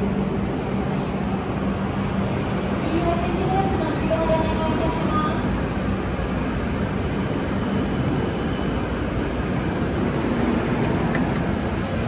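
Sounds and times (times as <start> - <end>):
train rumbling past: 0.0 - 12.0.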